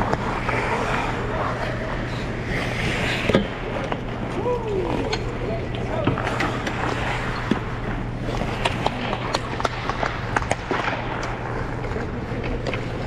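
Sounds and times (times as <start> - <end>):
ice skates scraping on ice: 0.0 - 13.0
steady low hum: 0.0 - 13.0.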